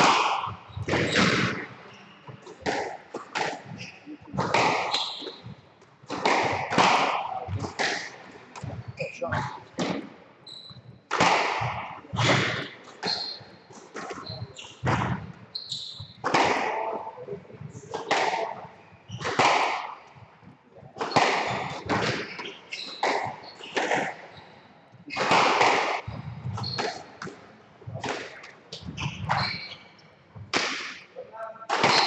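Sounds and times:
squash ball hits echoing: 0:00.0 - 0:05.5, 0:06.1 - 0:10.2, 0:11.1 - 0:17.1, 0:17.9 - 0:20.1, 0:21.0 - 0:24.3, 0:25.1 - 0:31.1, 0:31.7 - 0:32.0
shoes squeaking on wooden floor: 0:10.4 - 0:11.0, 0:11.8 - 0:30.5.

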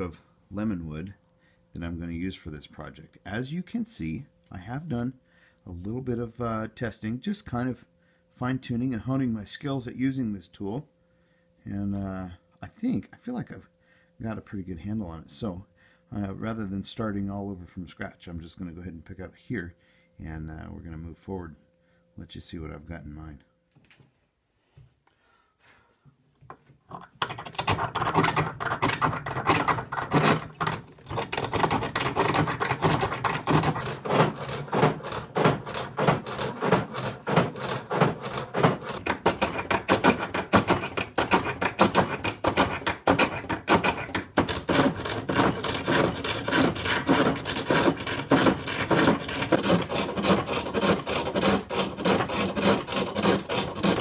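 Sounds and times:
chisel scraping wood on lathe: 0:26.9 - 0:54.0.

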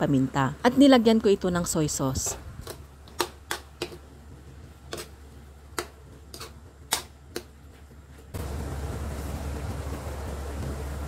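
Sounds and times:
steady hiss with low hum: 0:00.0 - 0:11.0
spatula knocking metal wok: 0:02.3 - 0:08.0.

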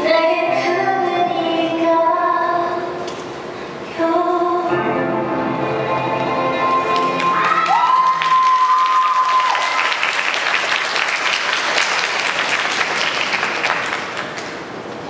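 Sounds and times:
audience applauding: 0:06.8 - 0:14.7.

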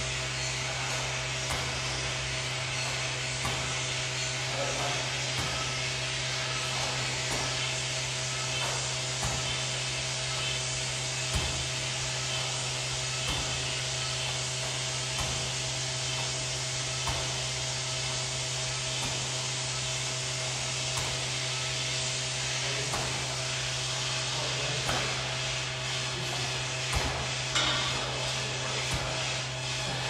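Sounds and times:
medicine ball thudding: 0:00.0 - 0:30.0
steady whirring hum: 0:00.0 - 0:30.0.

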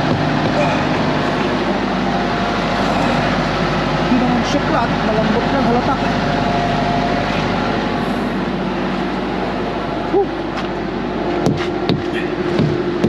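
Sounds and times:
truck engine running: 0:00.0 - 0:13.0
hammer knocking on tire: 0:11.4 - 0:13.0.

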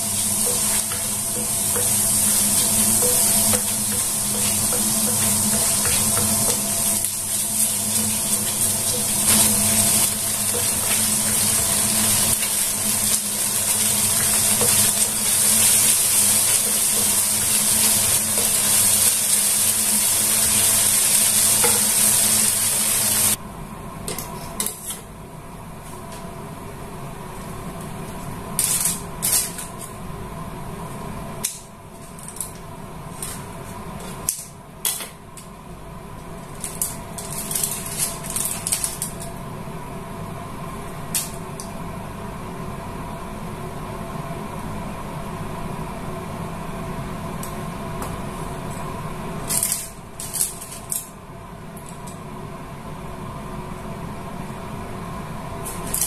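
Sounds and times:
food sizzling in hot oil: 0:00.0 - 0:23.4.

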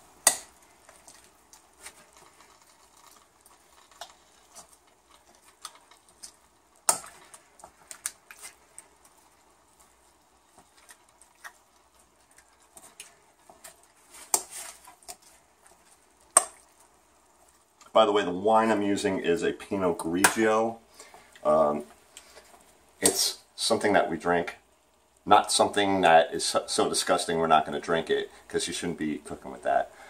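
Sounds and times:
spoon scraping wet meat: 0:00.2 - 0:17.9.

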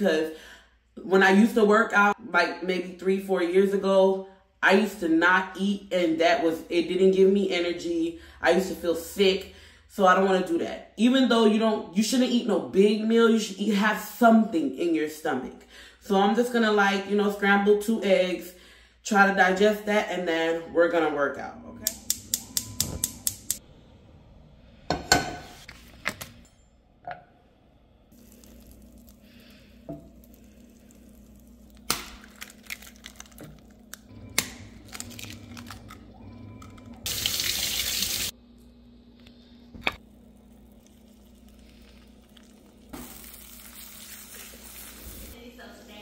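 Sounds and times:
low hum: 0:21.3 - 0:43.7
gas burner igniter clicks: 0:21.8 - 0:23.6
eggs cracking: 0:28.1 - 0:37.5, 0:39.9 - 0:44.5.

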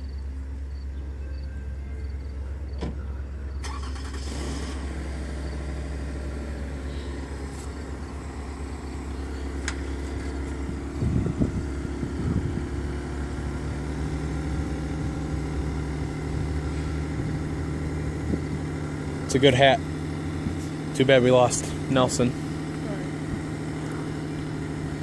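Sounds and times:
diesel locomotive idling: 0:00.0 - 0:25.0.

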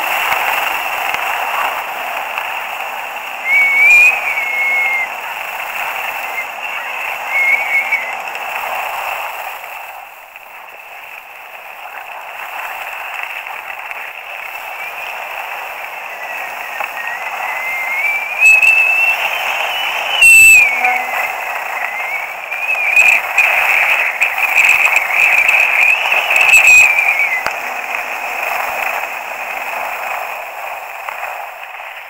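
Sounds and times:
skis hissing on snow: 0:00.0 - 0:32.0
wind rushing over microphone: 0:00.0 - 0:32.0
wavering wind whistle: 0:02.8 - 0:09.3, 0:14.4 - 0:29.2.

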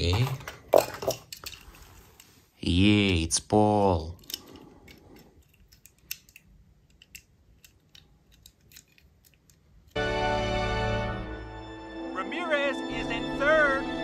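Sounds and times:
toy car clicks and taps: 0:05.4 - 0:09.6.

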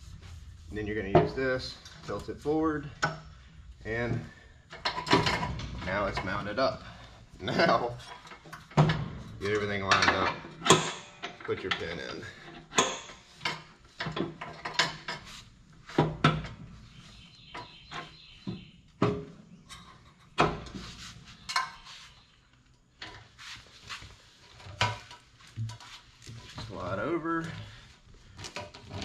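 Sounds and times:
ribbed hose being handled: 0:23.0 - 0:29.0.

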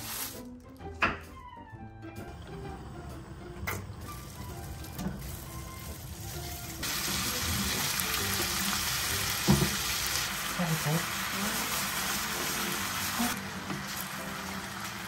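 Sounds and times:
pork sizzling in hot oil: 0:00.0 - 0:00.6, 0:02.5 - 0:15.0
spatula stir-frying in wok: 0:04.1 - 0:15.0.

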